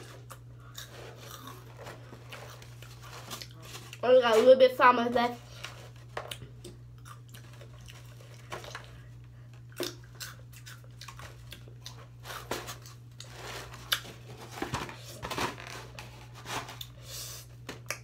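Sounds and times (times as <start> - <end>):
chips crunching on foam plate: 0.0 - 4.0.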